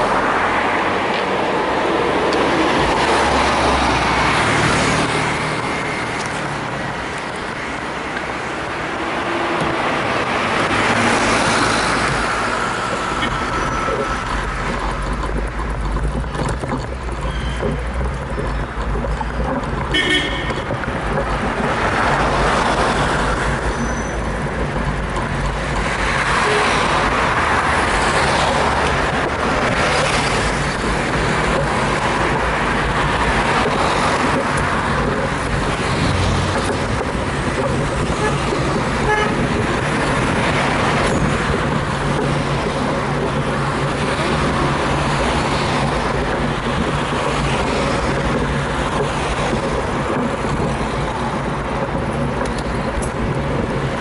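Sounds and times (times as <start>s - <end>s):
street traffic: 0.0s - 54.0s
wind rushing over microphone: 24.3s - 54.0s.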